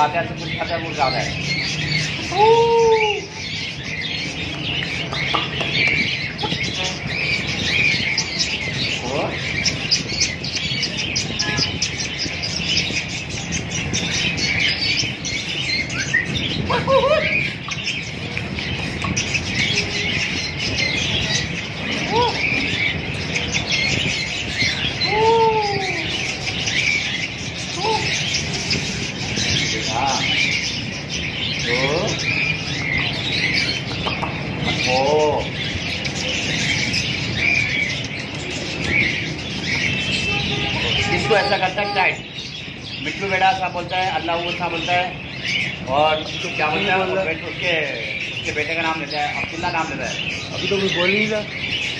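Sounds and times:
birds chirping: 0:00.0 - 0:51.9.

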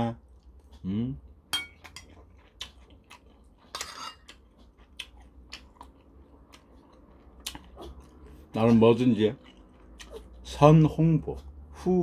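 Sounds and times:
chewing: 0:01.7 - 0:10.5.

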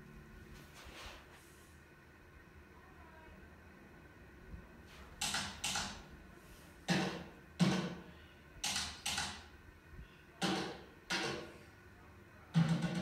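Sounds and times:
drum and cymbal strikes: 0:12.6 - 0:13.0.

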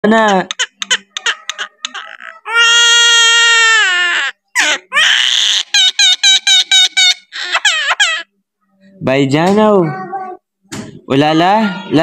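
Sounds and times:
bird mimicking child crying: 0:00.6 - 0:08.3.

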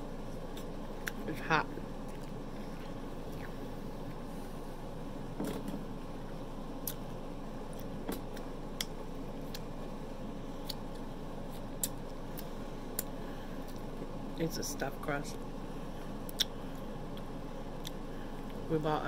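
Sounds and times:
person chewing: 0:02.0 - 0:04.3, 0:06.2 - 0:07.0, 0:07.7 - 0:09.8, 0:10.6 - 0:13.9, 0:16.2 - 0:18.6
wet mouth clicks and smacks: 0:06.8 - 0:07.0, 0:10.6 - 0:11.0, 0:11.6 - 0:13.1, 0:16.3 - 0:18.0.

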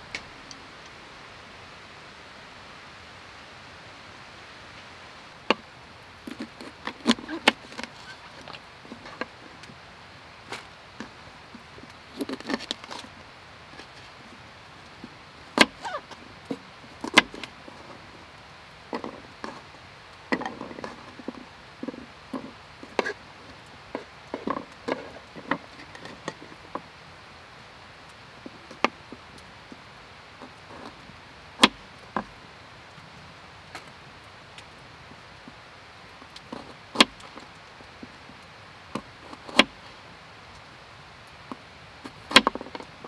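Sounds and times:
firewood being chopped: 0:05.4 - 0:09.8, 0:10.4 - 0:14.2, 0:15.1 - 0:26.9, 0:31.6 - 0:31.8, 0:36.2 - 0:38.2, 0:38.9 - 0:39.8, 0:41.5 - 0:43.0.

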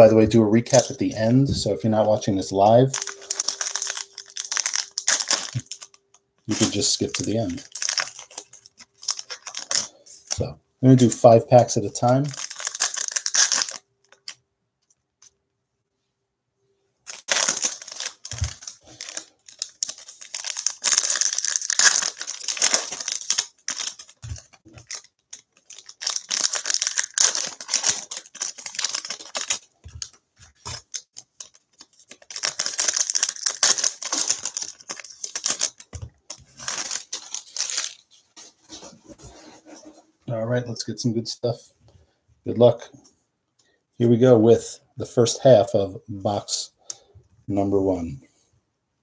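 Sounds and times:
foil wrappers crinkling: 0:00.7 - 0:01.2, 0:02.6 - 0:11.3, 0:12.0 - 0:14.4, 0:17.1 - 0:38.4.

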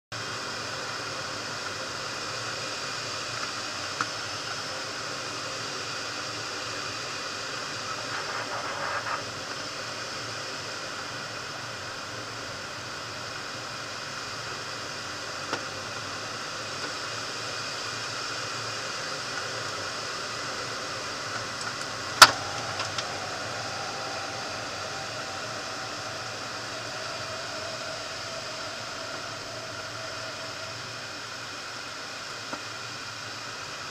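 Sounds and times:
air rushing over glider canopy: 0:20.2 - 0:33.1
faint falling tone: 0:21.8 - 0:32.1.

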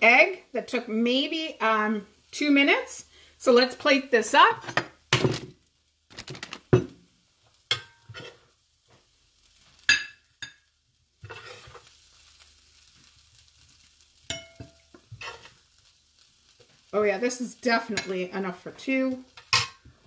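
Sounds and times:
utensils scraping a plate: 0:11.2 - 0:11.9, 0:15.1 - 0:15.6.

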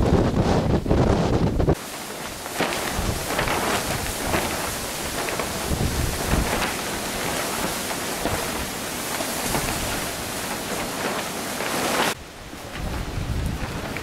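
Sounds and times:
wind buffeting microphone: 0:00.0 - 0:01.8, 0:02.6 - 0:08.8, 0:12.1 - 0:14.0
plastic sheeting flapping: 0:00.0 - 0:14.0
storm wind hissing: 0:00.0 - 0:14.0.

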